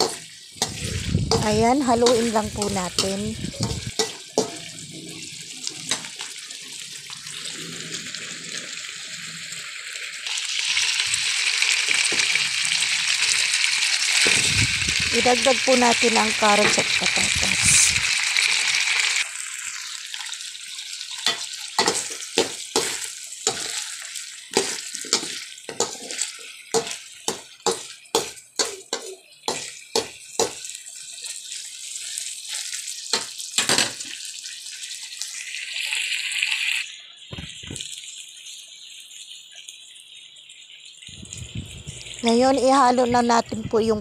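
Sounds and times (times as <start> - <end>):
spatula knocking and scraping pan: 0.0 - 4.7, 21.2 - 23.8, 24.5 - 30.7
food sizzling in a wok: 0.0 - 44.0.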